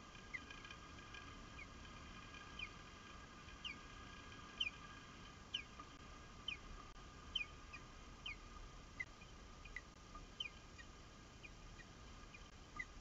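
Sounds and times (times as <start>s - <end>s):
osprey whistled chirps: 4.6s - 4.8s, 6.4s - 6.7s, 7.3s - 13.0s.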